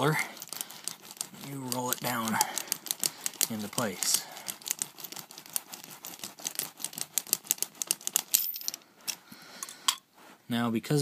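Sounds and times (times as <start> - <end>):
carpet roller clicking and crackling: 0.0 - 8.6.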